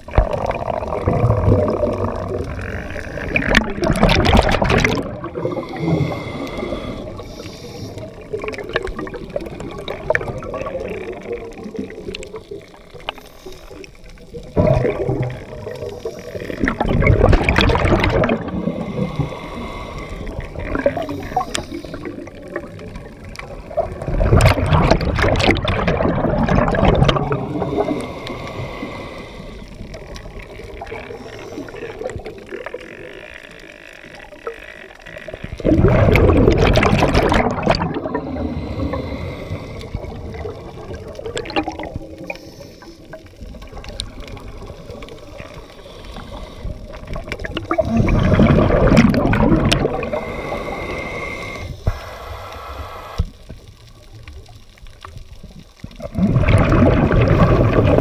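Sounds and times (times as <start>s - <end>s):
rushes of bubbles underwater: 0.0s - 58.0s
quiet regulator hiss: 5.1s - 24.1s, 27.1s - 36.2s, 37.9s - 56.0s.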